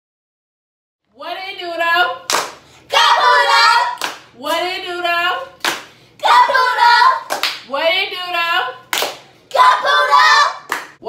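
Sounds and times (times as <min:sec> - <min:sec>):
sharp hand clap: 0:02.3 - 0:02.6, 0:04.0 - 0:04.3, 0:05.6 - 0:05.9, 0:07.3 - 0:07.7, 0:08.9 - 0:09.6, 0:10.7 - 0:11.0
girls chanting: 0:02.9 - 0:05.4, 0:06.2 - 0:07.6, 0:09.5 - 0:11.0.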